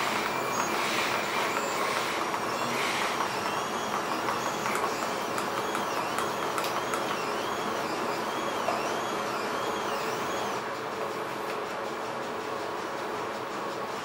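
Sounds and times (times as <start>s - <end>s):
massage motors humming: 0.0s - 10.7s.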